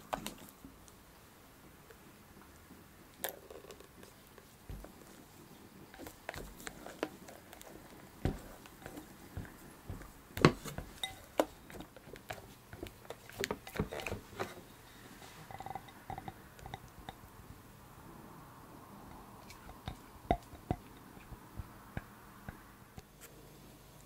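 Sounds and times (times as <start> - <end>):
spatula squelching thick mixture: 4.1 - 15.8
spatula clinking on glass bowl: 10.8 - 11.4.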